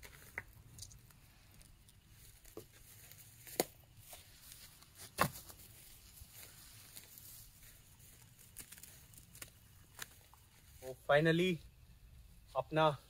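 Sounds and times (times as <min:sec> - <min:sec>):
plastic wrap crinkling: 0:05.4 - 0:10.7.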